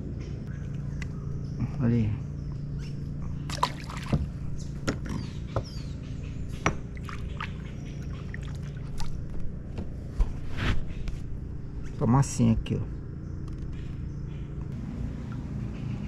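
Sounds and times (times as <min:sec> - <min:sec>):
steady low hum: 0:00.0 - 0:16.0
water splashes and drips: 0:03.5 - 0:04.4, 0:06.9 - 0:09.4.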